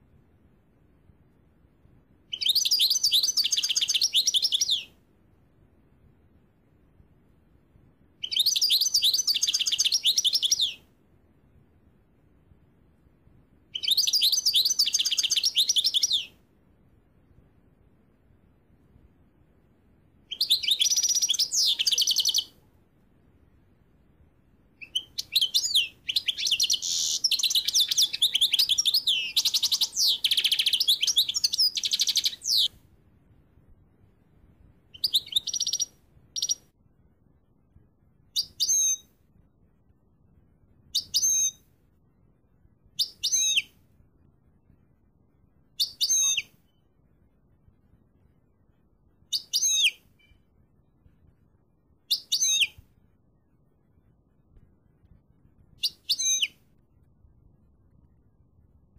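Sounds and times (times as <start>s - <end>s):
finch twittering song: 2.3s - 4.9s, 8.2s - 10.8s, 13.7s - 16.4s, 20.3s - 22.6s, 24.8s - 32.7s, 34.9s - 36.6s, 38.4s - 39.0s, 41.0s - 41.6s, 45.8s - 46.8s, 49.3s - 50.4s, 52.1s - 52.8s, 55.8s - 56.6s.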